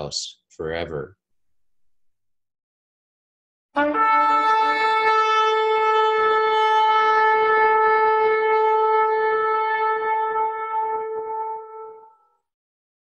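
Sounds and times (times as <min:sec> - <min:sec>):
shofar long note: 0:03.8 - 0:12.4.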